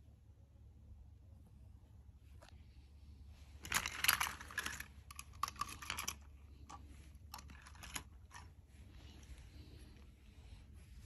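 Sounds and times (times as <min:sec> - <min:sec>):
rustling handling noises: 0:02.2 - 0:11.0.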